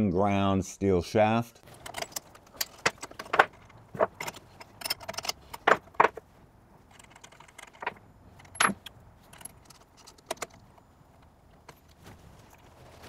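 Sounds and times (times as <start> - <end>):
metal tools clinking and tapping: 6.9 - 10.9.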